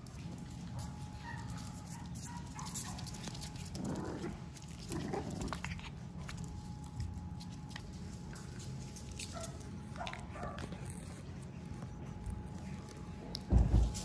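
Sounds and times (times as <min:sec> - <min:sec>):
puppies rough vocal noises: 0:03.4 - 0:06.4.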